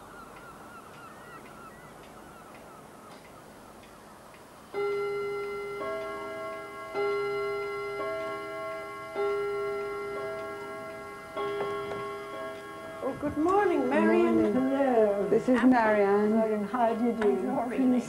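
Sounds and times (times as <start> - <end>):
chimes ringing notes: 4.7 - 18.0.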